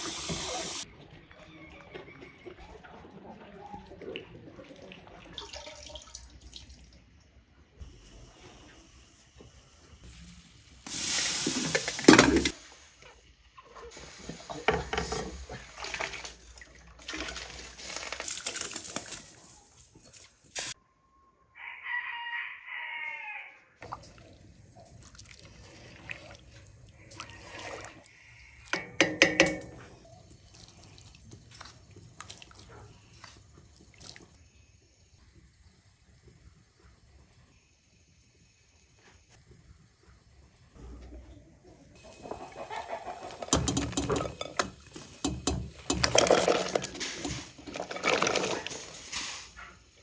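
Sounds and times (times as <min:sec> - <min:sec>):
water pouring and splashing: 0:00.0 - 0:01.2, 0:01.8 - 0:07.3, 0:10.8 - 0:20.8, 0:23.8 - 0:37.6, 0:42.0 - 0:50.0
rooster crowing: 0:21.4 - 0:23.8.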